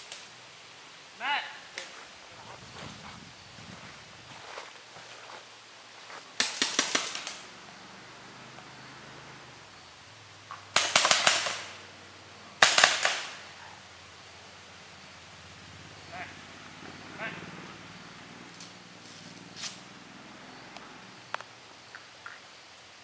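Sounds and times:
paintball markers firing: 6.4 - 7.4, 10.7 - 11.8, 12.6 - 13.4.

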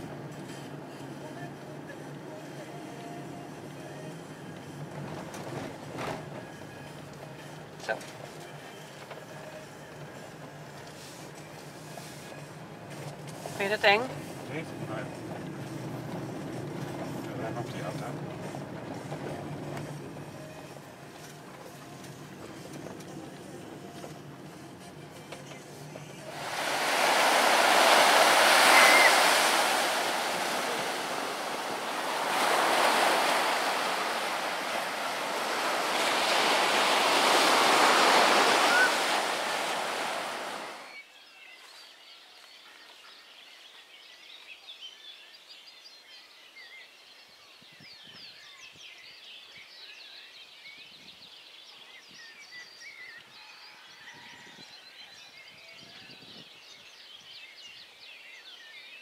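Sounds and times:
ocean waves breaking on beach: 26.2 - 41.0.

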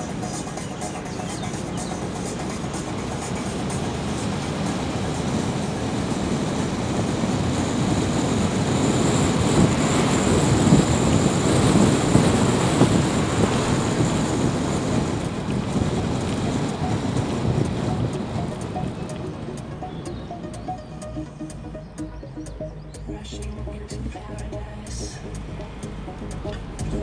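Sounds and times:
road and wind noise in car: 0.0 - 27.0.

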